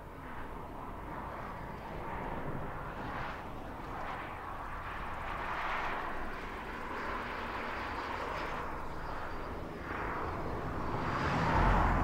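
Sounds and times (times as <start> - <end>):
car driving past: 10.8 - 12.0.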